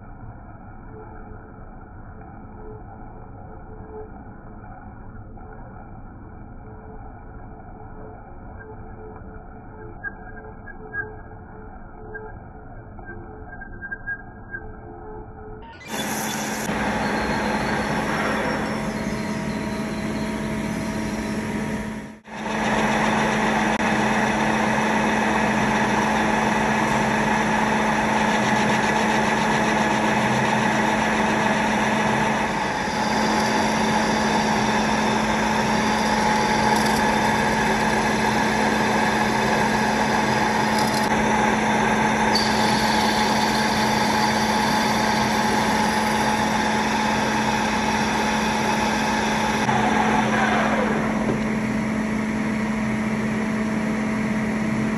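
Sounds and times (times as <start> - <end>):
metal lathe running: 15.8 - 54.9.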